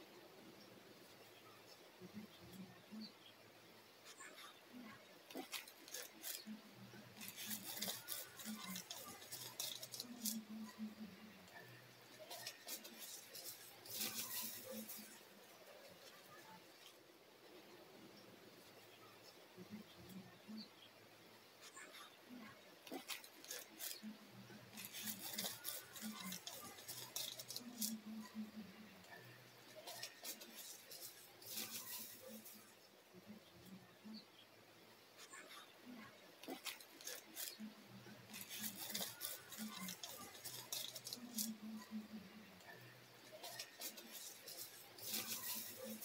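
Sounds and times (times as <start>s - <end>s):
dry leaves rustling and crackling: 5.3s - 6.5s, 7.2s - 10.5s, 12.0s - 16.2s, 22.8s - 24.0s, 24.7s - 28.1s, 29.7s - 32.7s, 36.4s - 37.6s, 38.3s - 41.6s, 43.2s - 46.0s.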